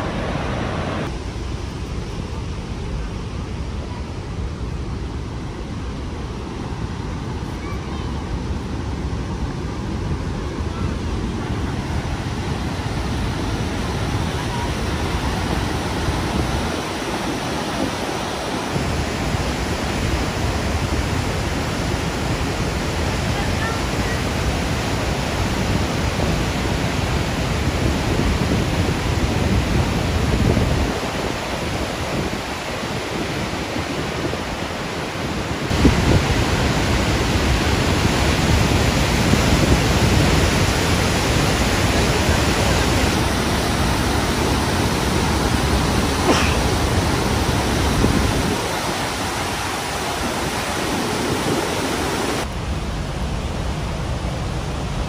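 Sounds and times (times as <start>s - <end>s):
waterfall rushing over rocks: 0.0s - 1.8s, 5.9s - 55.0s.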